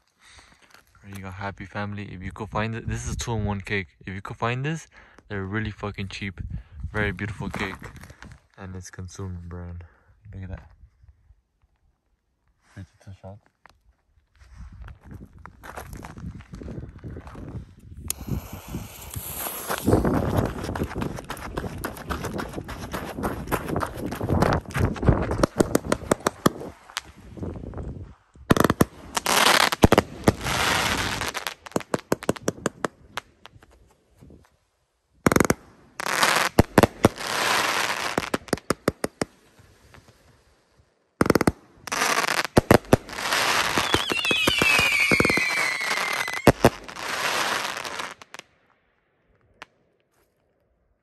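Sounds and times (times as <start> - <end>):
firework shots and crackling: 18.0 - 33.7, 35.2 - 40.4, 41.2 - 48.5
falling firework whistle: 18.1 - 20.3, 43.3 - 47.8.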